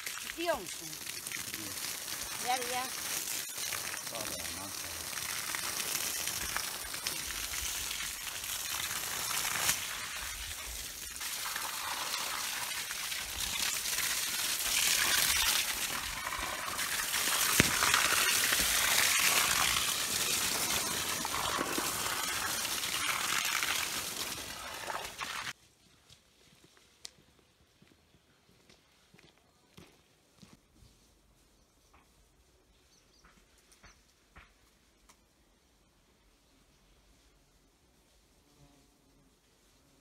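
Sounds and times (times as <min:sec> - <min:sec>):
hose water splashing on plants: 0:00.0 - 0:25.6.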